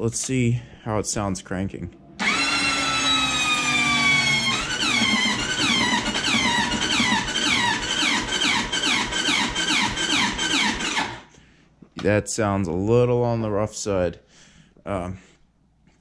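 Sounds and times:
electric starter cranking engine: 2.2s - 11.3s.

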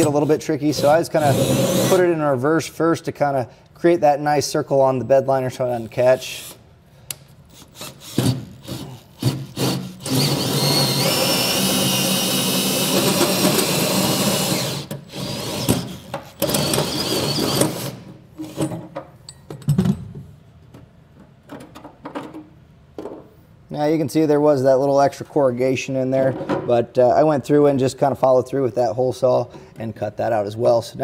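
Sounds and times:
cordless drill with hole saw: 0.8s - 2.0s, 7.5s - 18.0s.

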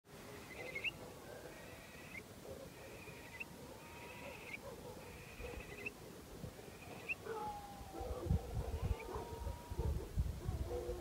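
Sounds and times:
fainter lower bird calls: 0.3s - 6.0s, 6.6s - 7.9s
birds trilling at night: 0.3s - 10.1s.

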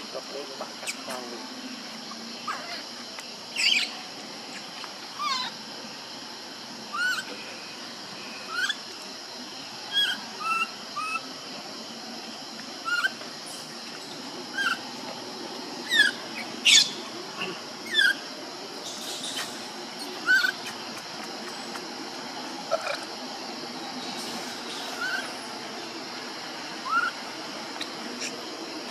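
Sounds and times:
baby monkey distress calls: 5.1s - 5.6s, 6.9s - 7.3s, 8.5s - 8.9s, 9.9s - 11.2s, 12.8s - 13.2s, 14.5s - 14.9s, 15.8s - 18.2s, 19.0s - 21.1s, 24.2s - 25.4s, 26.8s - 27.2s.

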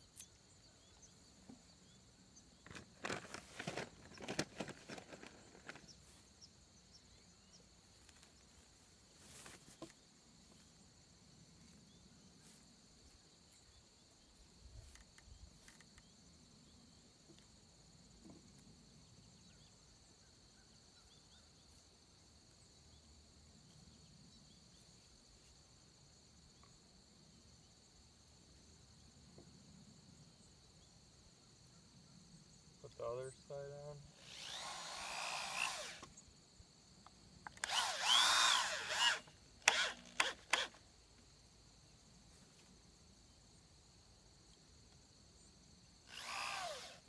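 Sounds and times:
crickets chirring: 0.0s - 47.0s.

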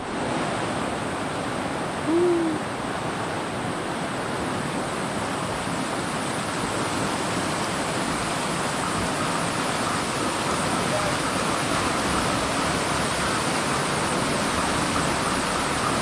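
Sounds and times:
fast-flowing river rushing: 0.0s - 16.0s
short low hoot: 2.0s - 2.7s.

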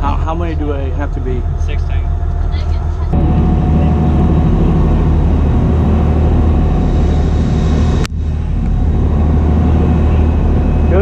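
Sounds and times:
boat engines droning: 0.0s - 11.0s
wind rushing: 1.1s - 11.0s
water noise: 3.1s - 11.0s.

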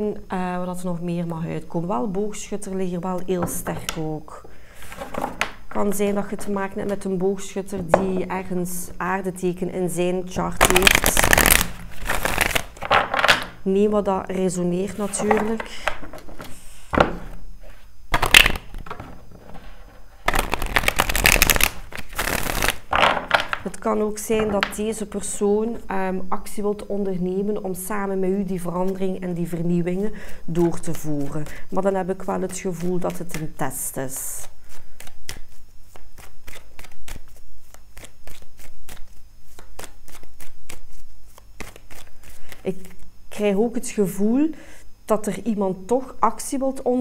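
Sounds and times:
cards rustling: 10.5s - 13.3s, 14.9s - 23.7s, 34.7s - 43.1s
cards flicking while shuffled: 10.6s - 13.4s, 20.2s - 23.7s, 34.7s - 43.0s.

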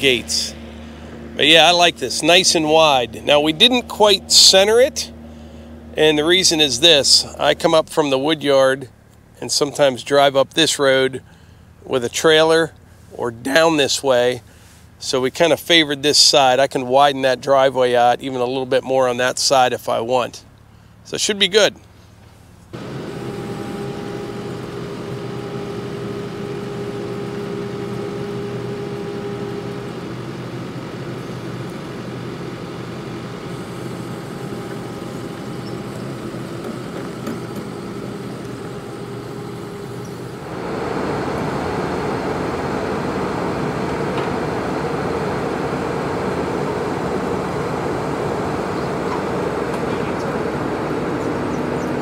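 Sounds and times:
diesel engine running: 0.0s - 52.0s.

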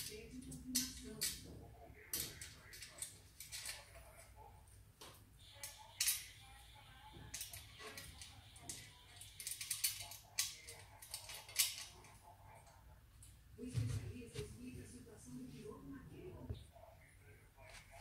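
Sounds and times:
metallic clicks and scrapes: 0.0s - 4.0s, 7.3s - 12.3s.

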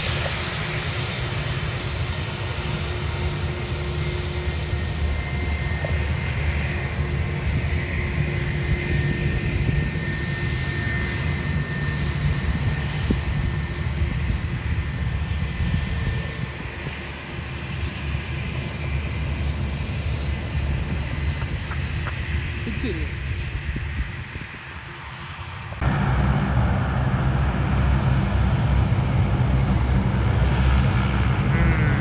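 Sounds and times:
aircraft engines rumbling: 0.0s - 32.0s
high engine whine: 0.0s - 32.0s.

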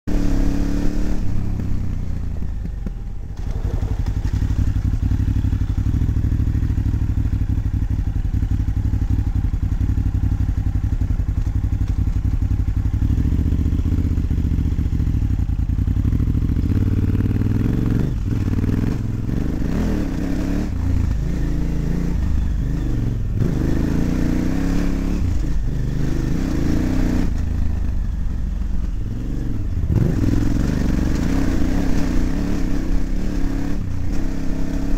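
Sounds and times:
motorcycle engine running: 0.1s - 34.9s
motorcycle clattering over bumps: 1.4s - 19.4s.

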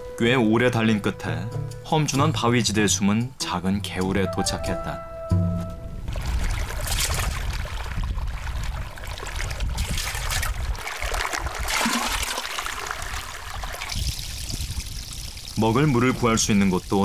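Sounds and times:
water pouring into metal can: 6.1s - 16.0s.

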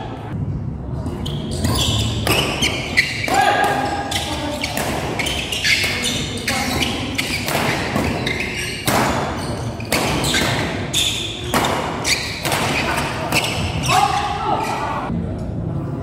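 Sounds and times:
shoes squeaking on court: 1.0s - 14.9s
racket striking shuttlecock: 7.2s - 10.8s, 11.4s - 13.5s.

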